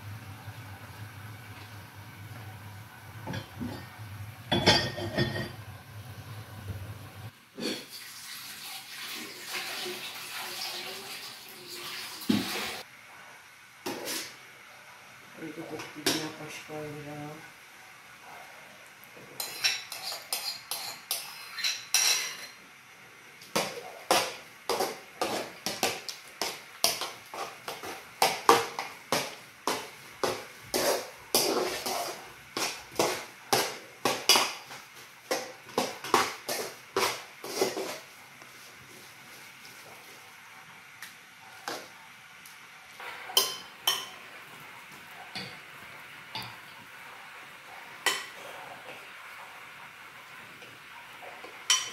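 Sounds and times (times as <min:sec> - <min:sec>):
metal pots clinking: 0:03.2 - 0:05.7, 0:43.3 - 0:44.2, 0:51.6 - 0:51.9
metal spoon scraping a pot: 0:19.4 - 0:22.6, 0:30.7 - 0:33.2.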